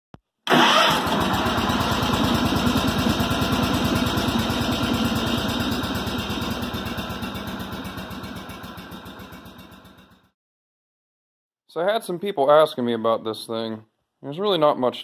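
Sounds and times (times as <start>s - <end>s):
small engine idling: 0.5s - 10.4s.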